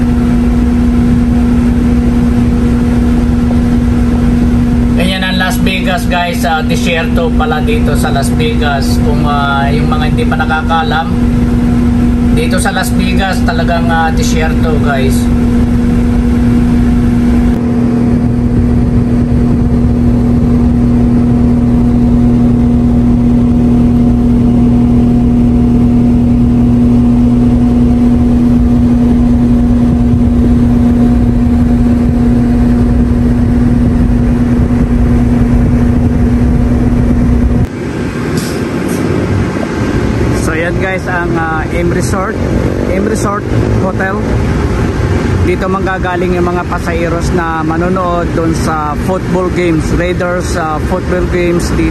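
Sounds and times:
bus engine idling: 0.0s - 17.6s.

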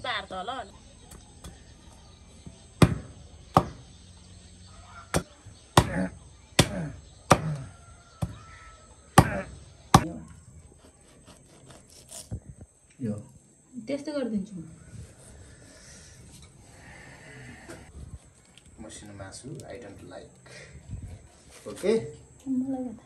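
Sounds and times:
knife chopping on wooden stump: 2.8s - 3.8s, 5.1s - 8.4s, 9.2s - 10.1s.

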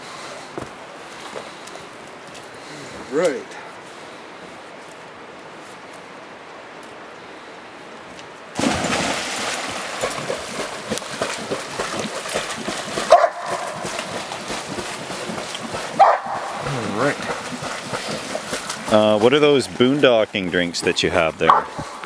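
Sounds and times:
river flowing: 0.0s - 22.0s
dog splashing while swimming: 8.6s - 22.0s
dog yipping: 16.0s - 16.5s.

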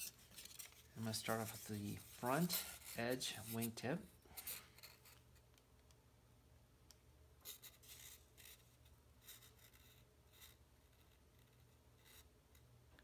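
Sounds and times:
hands rustling and scraping: 0.0s - 4.8s.

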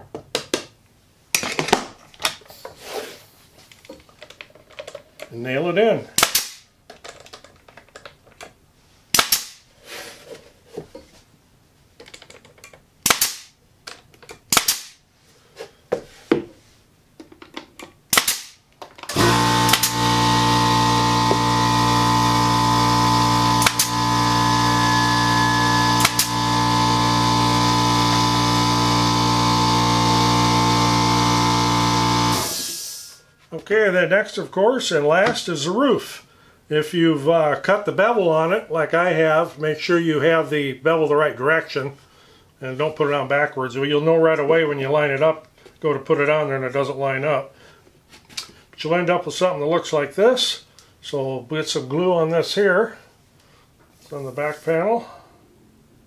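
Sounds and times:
nail gun firing: 6.2s - 6.7s, 9.1s - 9.6s, 13.0s - 13.6s, 14.5s - 15.0s, 18.1s - 32.7s
machine hum: 19.1s - 32.7s.

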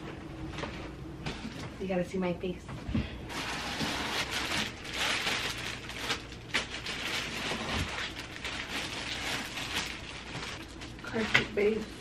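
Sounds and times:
plastic wrapping crinkling: 3.3s - 12.0s.

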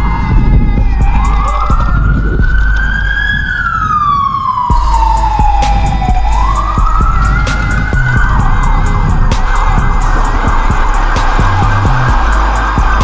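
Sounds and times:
police siren wailing: 0.0s - 13.0s
low rumble: 4.7s - 13.0s.

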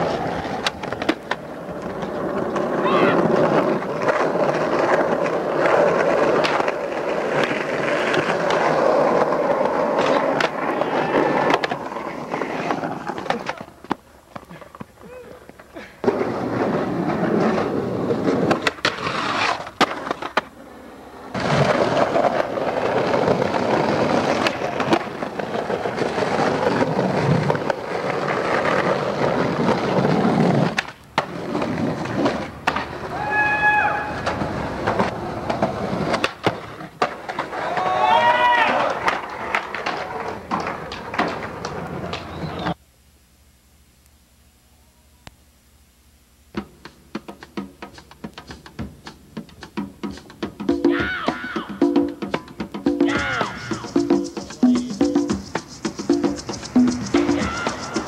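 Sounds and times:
skateboard popping and landing clacks: 0.0s - 20.5s, 21.3s - 33.1s, 34.2s - 37.9s, 38.8s - 42.8s
skateboard wheels rolling on pavement: 0.0s - 42.8s, 46.5s - 58.0s.

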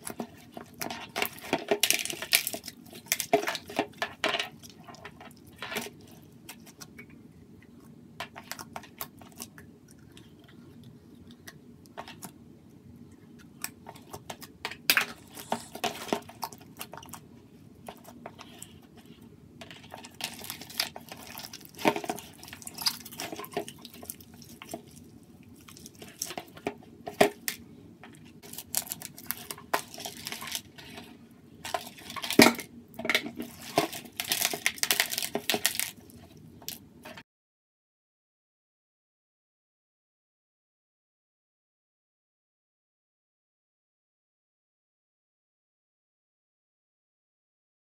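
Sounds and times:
slime squelching: 13.2s - 17.2s, 19.8s - 26.6s.

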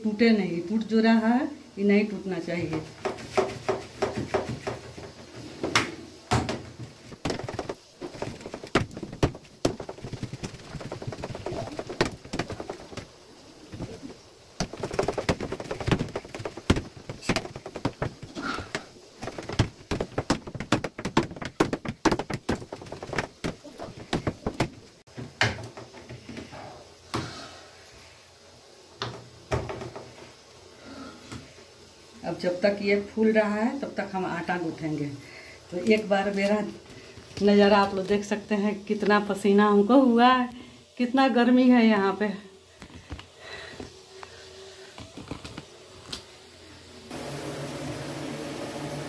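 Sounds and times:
hand slapping batter in steel bowl: 3.0s - 4.9s.

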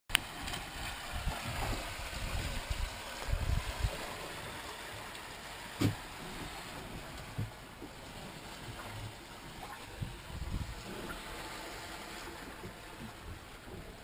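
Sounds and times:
water rushing along a hull: 0.1s - 14.0s.

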